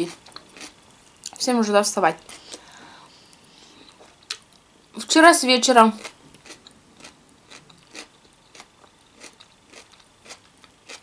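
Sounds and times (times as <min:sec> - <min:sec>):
person chewing salad: 0:00.1 - 0:01.4, 0:06.0 - 0:11.0.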